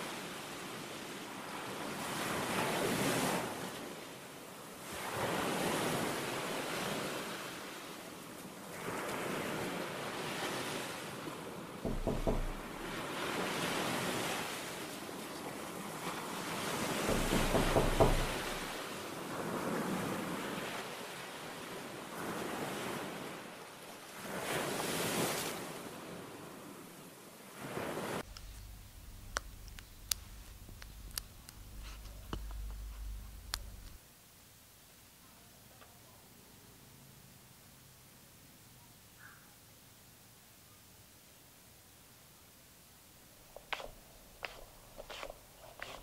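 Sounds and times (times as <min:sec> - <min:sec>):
low rumble: 0:28.3 - 0:34.0.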